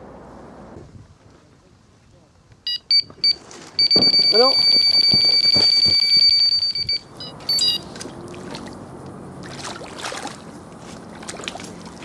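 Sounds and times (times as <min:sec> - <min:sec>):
faint water: 0:01.1 - 0:12.0
high-pitched electronic beeping: 0:02.7 - 0:07.8.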